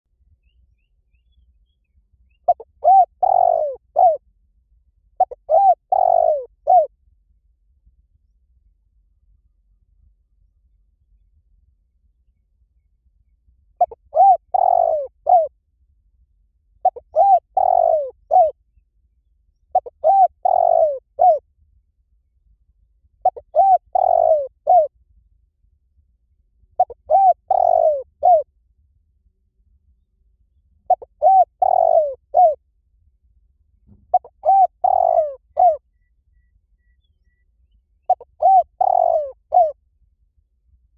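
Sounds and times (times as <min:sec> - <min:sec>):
dove cooing: 0:02.5 - 0:04.2, 0:05.2 - 0:06.9, 0:13.8 - 0:15.5, 0:16.8 - 0:18.5, 0:19.7 - 0:21.4, 0:23.2 - 0:24.9, 0:26.8 - 0:28.5, 0:30.9 - 0:32.6, 0:34.1 - 0:35.8, 0:38.1 - 0:39.8.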